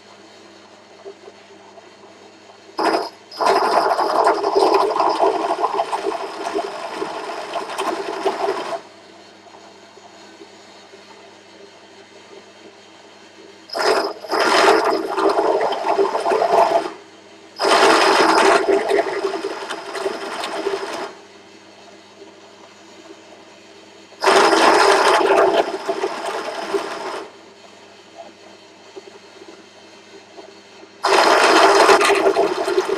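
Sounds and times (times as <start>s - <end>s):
drill press motor hum: 2.4s - 11.0s, 17.6s - 21.3s, 24.2s - 27.8s, 30.4s - 32.9s.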